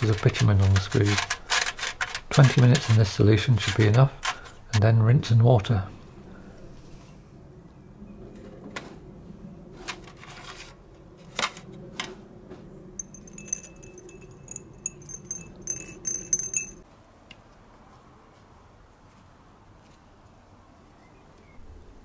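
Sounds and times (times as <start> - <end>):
screws clinking in a glass jar: 13.0 - 16.8.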